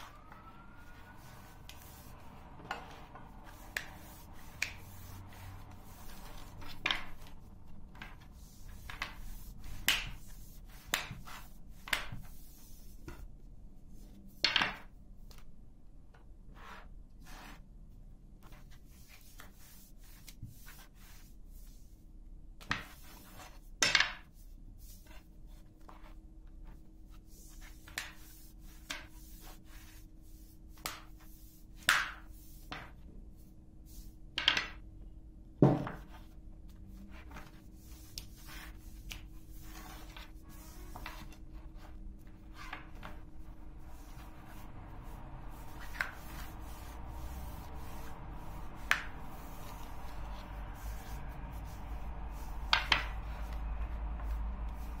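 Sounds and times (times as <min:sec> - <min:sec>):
rolling pin rolling dough: 0:00.0 - 0:15.4, 0:18.4 - 0:21.9, 0:22.6 - 0:34.8, 0:35.6 - 0:55.0
rolling pin knocking on table: 0:35.6 - 0:36.0.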